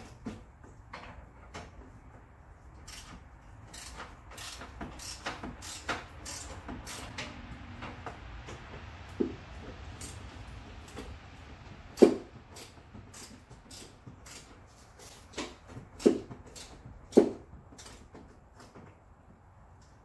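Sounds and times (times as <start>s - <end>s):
knocks and clicks of tools on plastic: 3.8s - 10.2s, 12.0s - 19.0s.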